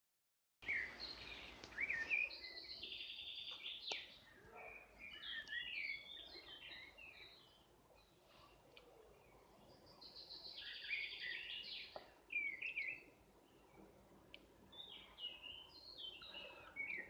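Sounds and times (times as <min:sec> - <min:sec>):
songbirds chirping and trilling: 0:00.6 - 0:17.0.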